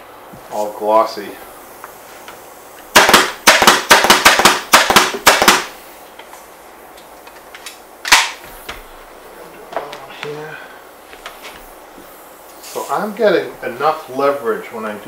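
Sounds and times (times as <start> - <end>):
pneumatic staple gun firing: 2.9 - 5.7, 8.0 - 8.4
sharp knock: 2.9 - 5.7.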